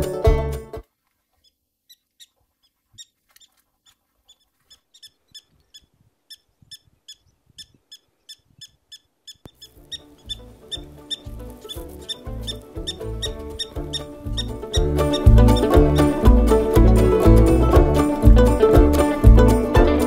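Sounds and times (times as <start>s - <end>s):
banjo music: 0.0s - 0.9s, 9.7s - 20.0s
prairie dog alarm chirps: 1.4s - 16.7s.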